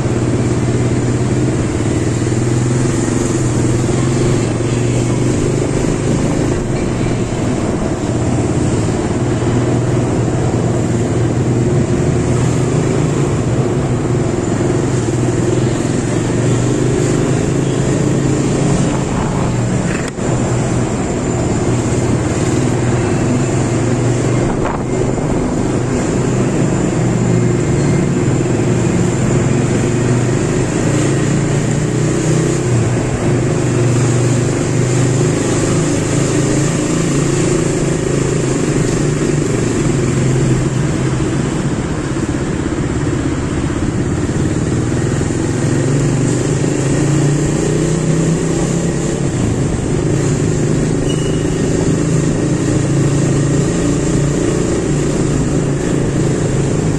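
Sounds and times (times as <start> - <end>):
motorcycle engine running: 0.0 - 56.9.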